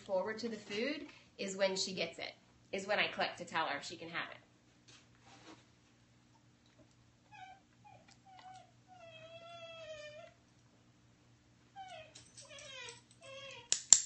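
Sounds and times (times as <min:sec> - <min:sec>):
puppy whining: 0:07.2 - 0:10.4, 0:11.7 - 0:13.8.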